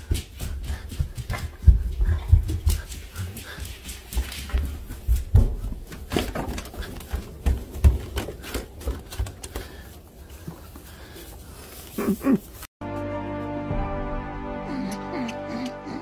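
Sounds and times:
footsteps: 0:00.0 - 0:12.7.

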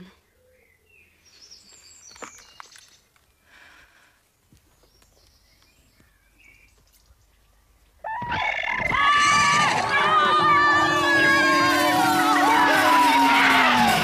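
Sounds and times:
high animal-like cries: 0:08.0 - 0:14.0
crowd cheering: 0:08.1 - 0:14.0.

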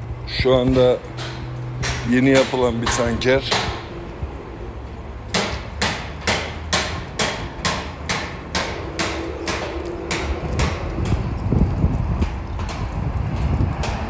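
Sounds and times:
hammer striking metal: 0:00.8 - 0:03.9, 0:05.3 - 0:11.3.

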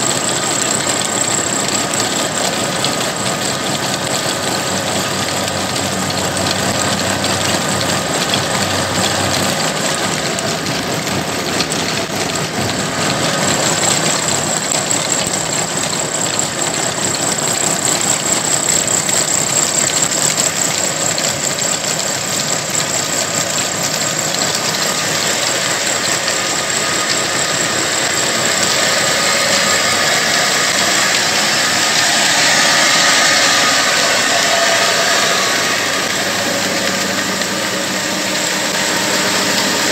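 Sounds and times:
belt-driven machinery clatter: 0:00.0 - 0:39.9
cotton-opening machine din: 0:00.0 - 0:39.9
diesel engine running: 0:00.0 - 0:39.9
thin high whine: 0:24.4 - 0:39.9.

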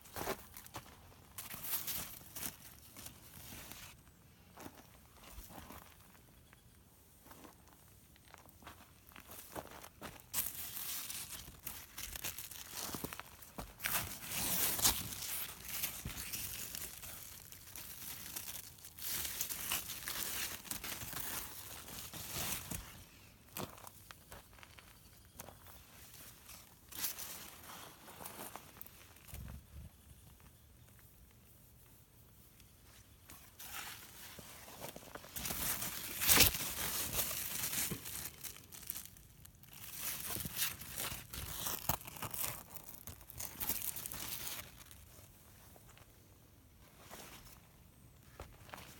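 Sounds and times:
large leaves rustling and crinkling: 0:00.1 - 0:04.1, 0:09.9 - 0:23.2, 0:25.8 - 0:30.3, 0:32.8 - 0:45.7.

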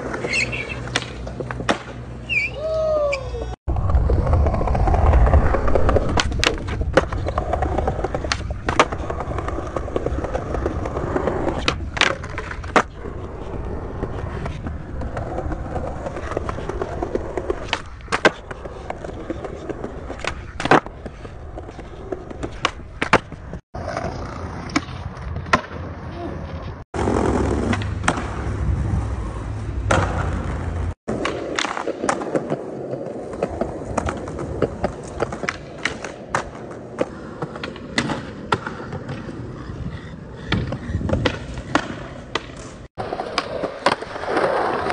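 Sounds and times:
skateboard clacks: 0:00.0 - 0:02.0, 0:03.9 - 0:13.4, 0:29.8 - 0:39.4, 0:40.4 - 0:44.9
skateboard wheels rolling on concrete: 0:00.0 - 0:44.9.

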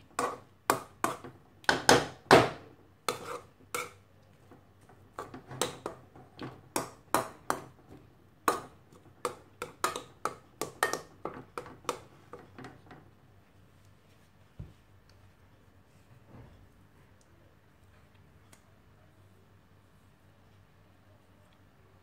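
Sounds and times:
spatula tapping a metal pan: 0:06.7 - 0:07.7, 0:08.4 - 0:12.0.

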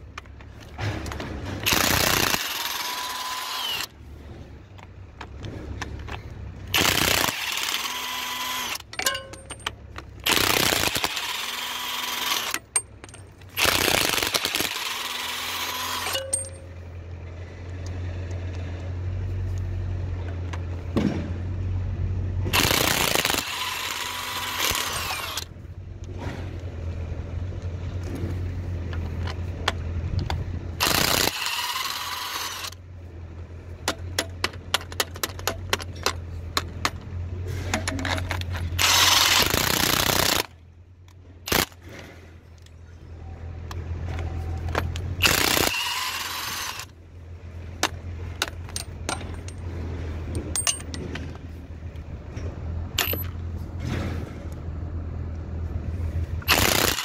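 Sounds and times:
impact wrench hammering: 0:08.8 - 0:11.2, 0:15.7 - 0:16.7.

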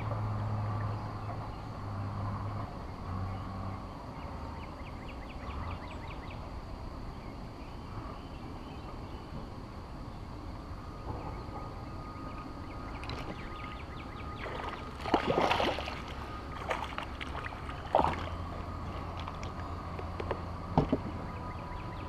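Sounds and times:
fish splashing at surface: 0:14.4 - 0:18.5.

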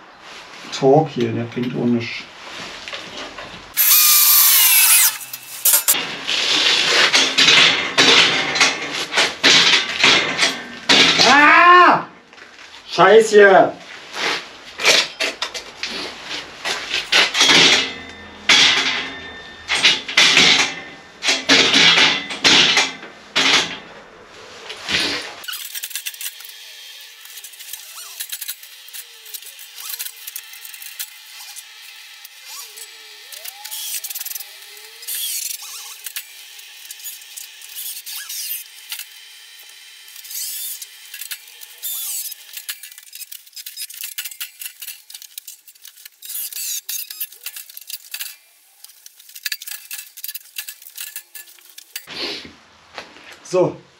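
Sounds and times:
cordless drill driving screws: 0:03.8 - 0:06.0, 0:25.4 - 0:52.1
faint squeaks: 0:32.4 - 0:36.1.

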